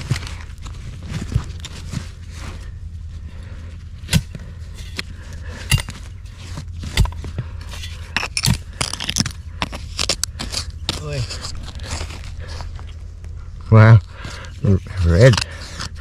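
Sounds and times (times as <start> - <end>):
steady low rumble: 0.0 - 16.0
hand tool digging in soil: 4.0 - 13.0, 14.2 - 16.0.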